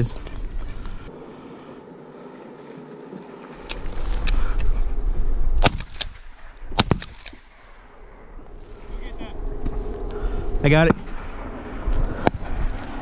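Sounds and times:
shotgun shots: 5.6s - 7.6s.

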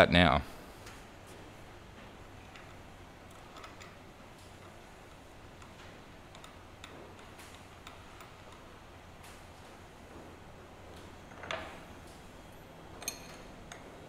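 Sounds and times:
low steady hum: 0.0s - 14.0s
light clicks of nut threading: 4.6s - 9.4s.

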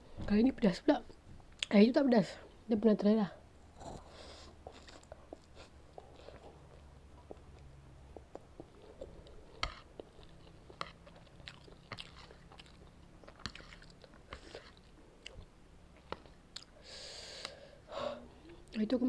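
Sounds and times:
chewing noodles: 3.8s - 16.8s
mouth clicks and smacks: 4.8s - 10.1s.

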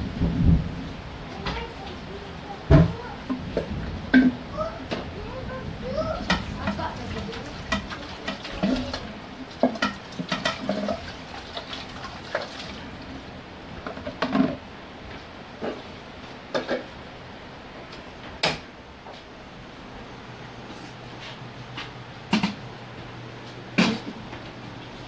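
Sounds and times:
tap water running: 1.3s - 14.7s
wok clanking against sink: 6.2s - 11.7s.

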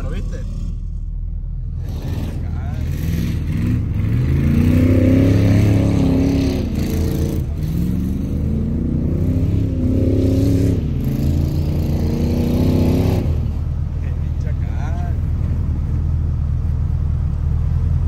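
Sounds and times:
off-road vehicle engine revving: 0.0s - 18.0s.

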